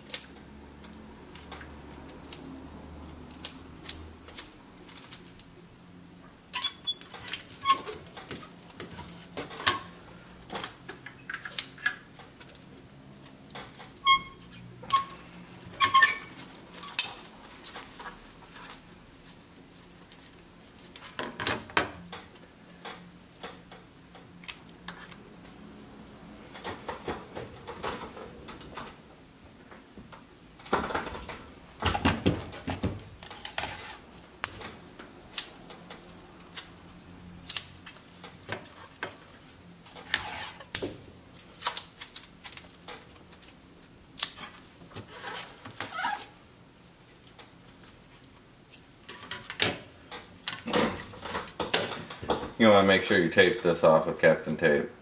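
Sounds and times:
tape clicking and crackling: 0.0s - 5.6s, 10.4s - 14.1s, 14.8s - 25.6s, 32.3s - 46.4s.

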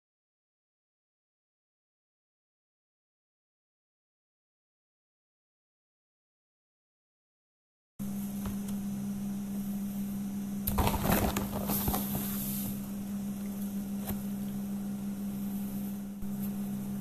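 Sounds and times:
steady low hum: 8.0s - 17.0s
sieve rattling and scraping on griddle: 10.7s - 12.6s.

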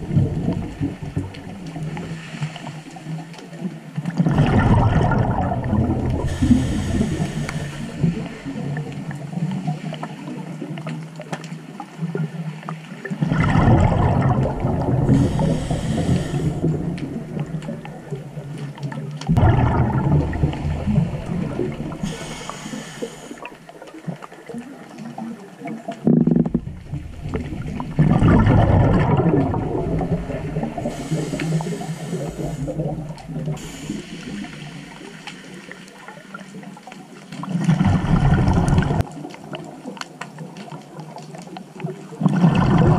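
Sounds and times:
bubbling exhaled air: 0.0s - 2.8s, 4.2s - 9.3s, 13.2s - 18.6s, 19.3s - 23.9s, 26.0s - 35.8s, 37.4s - 39.1s, 42.2s - 42.9s
regulator inhale hiss: 6.2s - 8.5s, 15.1s - 17.0s, 21.9s - 23.6s, 30.6s - 36.0s.

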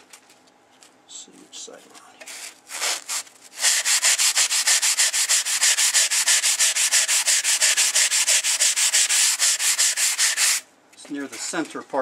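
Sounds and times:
sanding block scraping metal blade: 2.3s - 10.6s.

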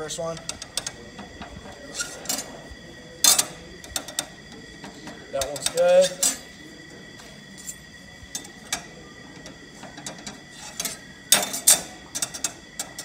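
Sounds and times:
metal plate clicking on steel bench: 8.3s - 13.0s.

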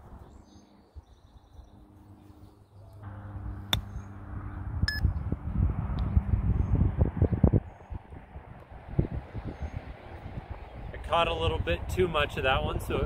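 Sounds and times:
wind rumbling on microphone: 3.0s - 13.0s
golf club striking ball: 3.7s - 4.0s.

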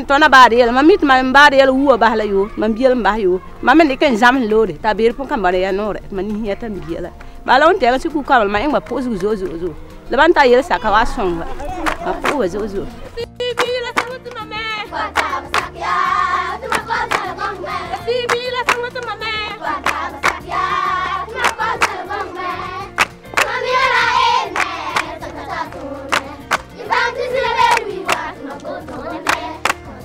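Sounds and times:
rhythmic hand clapping: 8.6s - 9.9s, 11.5s - 30.0s
children singing: 14.7s - 30.0s.

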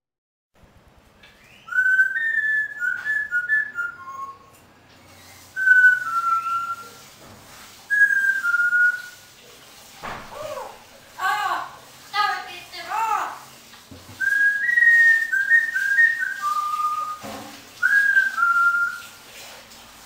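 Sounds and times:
person whistling a tune: 1.5s - 4.5s, 5.6s - 6.9s, 7.9s - 9.2s, 14.2s - 17.2s, 17.8s - 19.1s.

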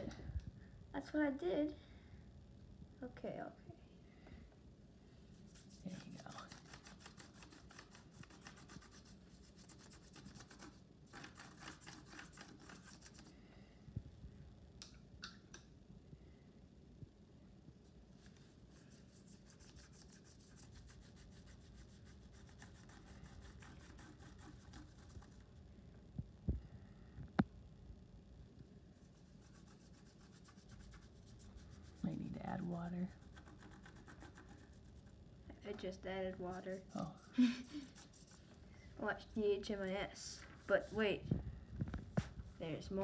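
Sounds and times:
paintbrush scrubbing on paper: 5.3s - 13.3s, 18.2s - 25.5s, 29.0s - 35.2s, 36.3s - 41.2s.

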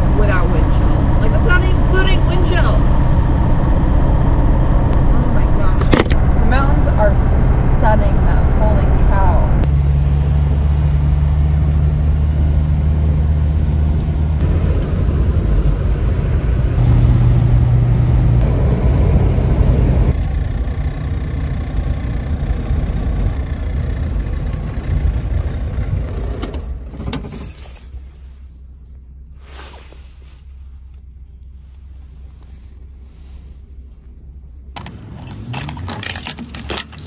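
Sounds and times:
car engine and road noise: 0.0s - 37.0s
keys jingling: 26.1s - 28.0s, 34.8s - 37.0s.

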